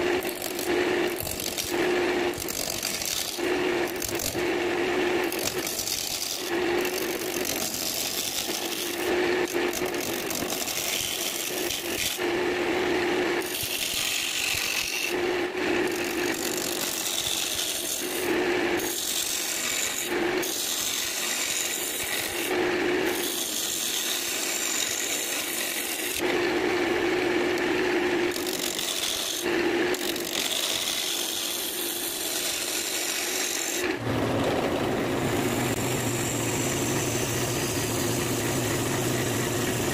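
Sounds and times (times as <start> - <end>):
lathe motor hum: 33.8 - 39.9.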